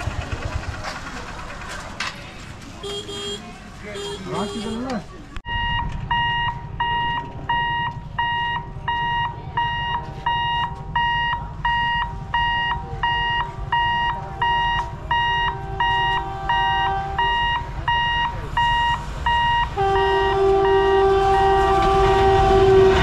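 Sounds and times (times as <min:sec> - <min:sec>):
level crossing alarm beeping: 0:05.5 - 0:22.0.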